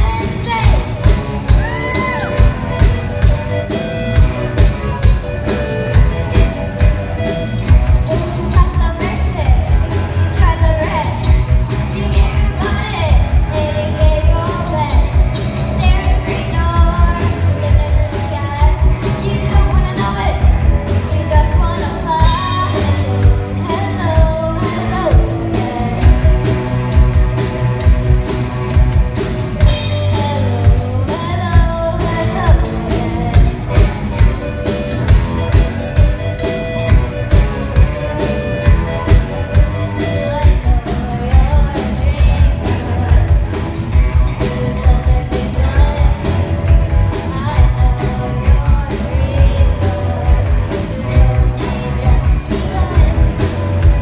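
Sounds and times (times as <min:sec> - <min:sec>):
child singing into a microphone: 0:00.0 - 0:02.2, 0:08.0 - 0:26.2, 0:29.7 - 0:33.9, 0:37.8 - 0:43.5, 0:44.2 - 0:54.0
drum kit beat: 0:00.0 - 0:54.0
electric guitars: 0:00.0 - 0:54.0.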